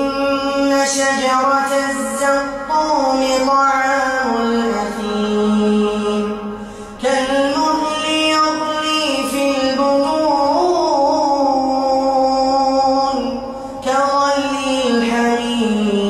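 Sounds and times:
man chanting melodically: 0.0 - 16.0.

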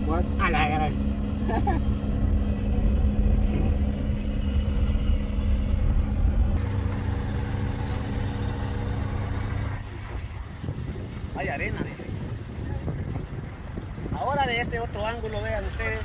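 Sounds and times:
faint hum: 0.0 - 10.6
car engine and road rumble: 0.0 - 16.0.

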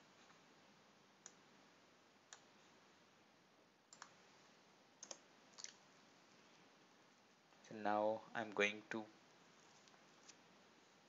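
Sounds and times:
low steady hiss: 0.0 - 11.0
computer mouse clicks: 2.3 - 2.5, 3.9 - 4.2, 5.0 - 5.7.

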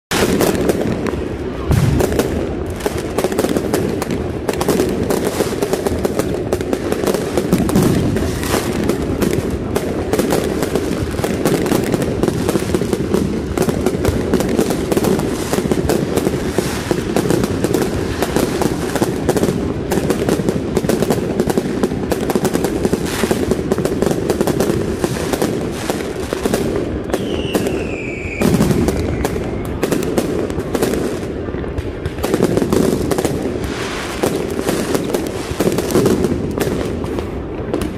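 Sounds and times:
fireworks crackling and popping: 0.0 - 37.9
falling whistle: 27.1 - 29.7.

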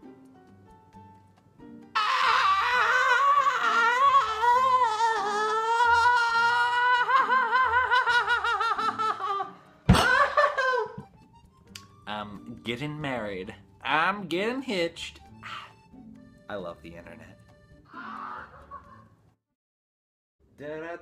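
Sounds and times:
light background music: 0.0 - 19.4
man squealing: 2.0 - 10.9, 17.9 - 19.0.

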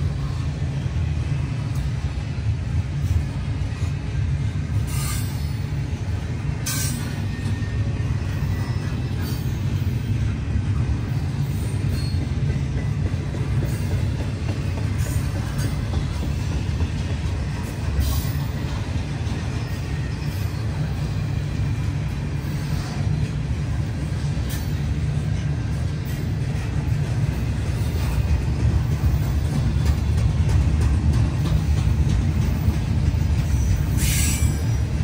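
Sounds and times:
freight train rumbling past: 0.0 - 35.0.

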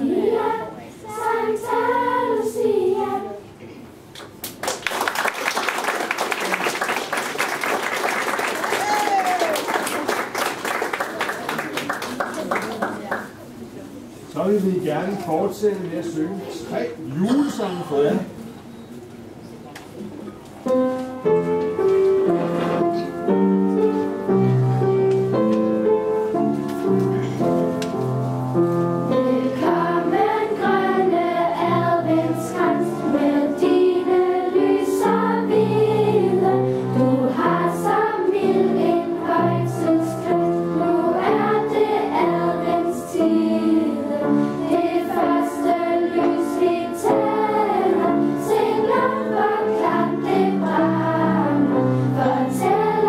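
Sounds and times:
girls' choir singing: 0.0 - 3.6, 29.0 - 53.0.

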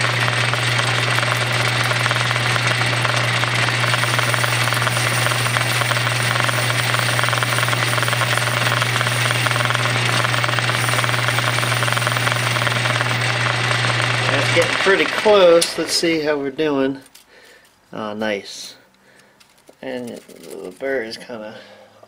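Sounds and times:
lathe motor hum: 0.0 - 16.6
cutting tool hiss: 3.8 - 16.0.

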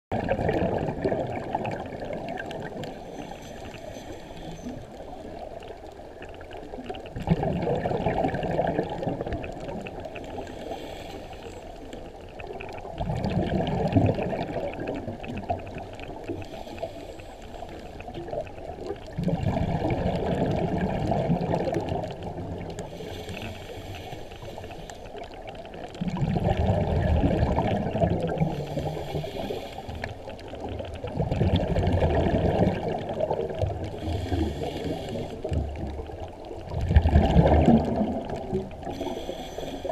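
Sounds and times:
exhaled bubbles gurgling: 0.1 - 39.9
regulator inhalation hiss: 10.4 - 11.9, 16.4 - 18.0, 22.9 - 25.1, 28.5 - 30.1, 34.0 - 35.5, 38.9 - 39.9.

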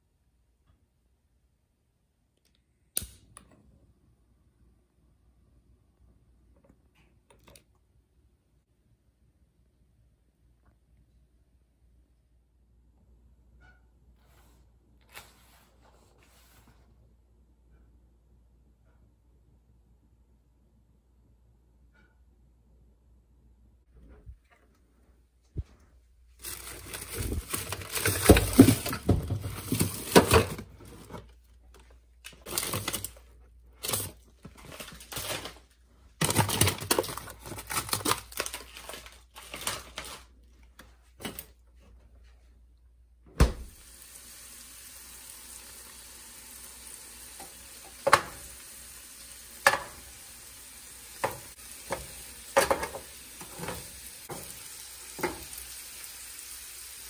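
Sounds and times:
kitchen clatter: 26.4 - 31.2, 49.6 - 50.1, 51.2 - 55.6
food frying in a pan: 43.7 - 57.0.

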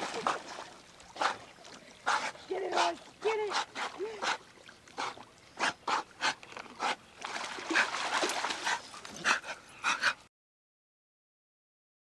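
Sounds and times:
dog panting: 2.0 - 4.4, 7.7 - 10.3.

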